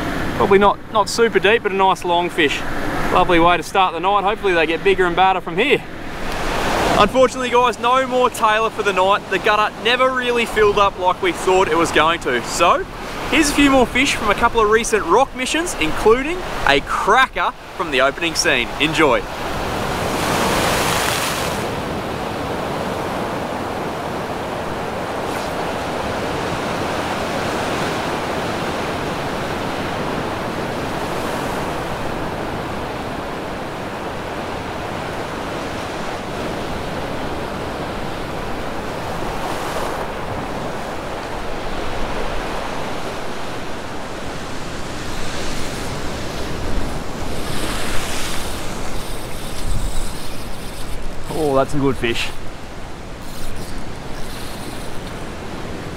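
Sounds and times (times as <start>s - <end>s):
ocean surf breaking on rocks: 0.0s - 55.9s.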